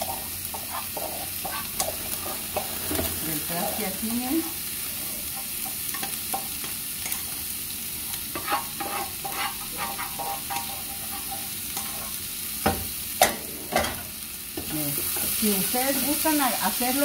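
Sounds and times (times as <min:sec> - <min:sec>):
spatula scraping and tapping: 0:00.0 - 0:03.8, 0:08.3 - 0:12.8
vegetables sizzling in a frying pan: 0:00.0 - 0:17.0.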